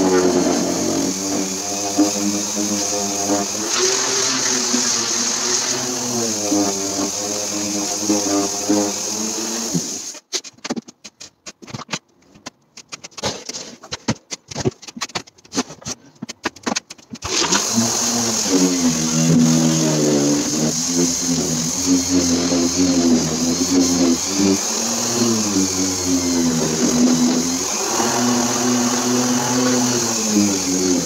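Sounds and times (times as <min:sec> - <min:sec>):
electric power sander: 0:00.0 - 0:10.1, 0:17.3 - 0:31.0
knocks and clatter of wood: 0:10.3 - 0:17.3.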